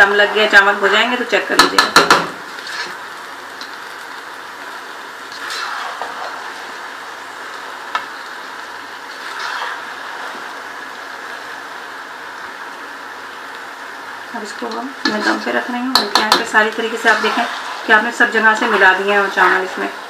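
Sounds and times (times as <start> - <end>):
syrup sizzling and bubbling: 0.0 - 20.0
spoon tapping pot: 1.6 - 2.3, 15.9 - 16.5
spoon stirring in pot: 14.7 - 17.8.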